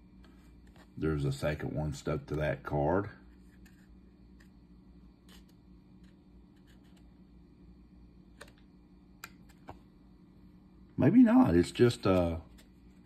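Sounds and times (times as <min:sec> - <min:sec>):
faint clicks of cards handled: 0:03.3 - 0:04.6, 0:12.0 - 0:13.0.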